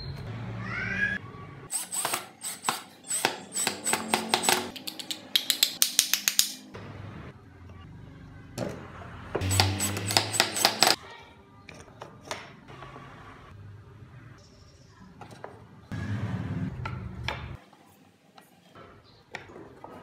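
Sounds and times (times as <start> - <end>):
cordless drill driving screws: 1.8 - 4.7, 9.4 - 11.0.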